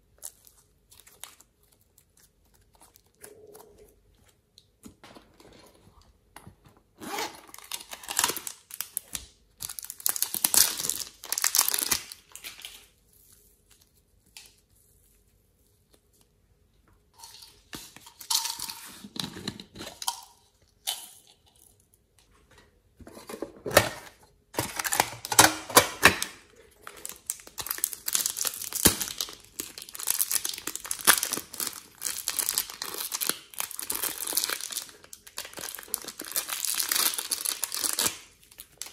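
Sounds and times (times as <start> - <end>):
plastic packaging crinkling: 7.5 - 13.0, 24.6 - 38.9
thin plastic bag crinkling: 7.5 - 13.0, 24.6 - 38.9.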